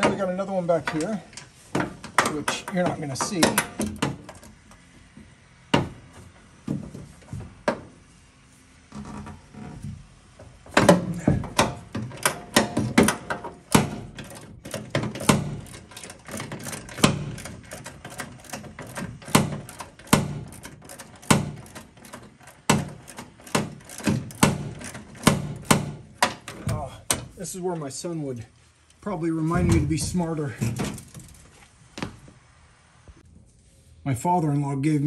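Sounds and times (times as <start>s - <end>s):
wrench clicking on bolt: 11.5s - 27.2s.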